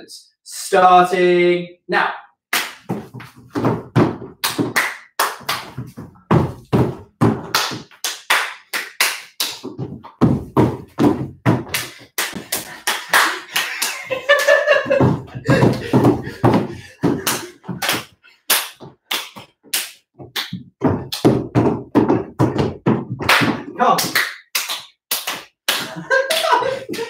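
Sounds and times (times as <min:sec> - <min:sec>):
hand claps: 0:02.5 - 0:03.4, 0:04.4 - 0:05.9, 0:07.4 - 0:10.2, 0:11.5 - 0:21.4, 0:22.0 - 0:27.0
feet thudding on wooden floor: 0:02.8 - 0:04.8, 0:05.4 - 0:07.8, 0:09.6 - 0:12.8, 0:14.0 - 0:18.1, 0:20.2 - 0:23.7.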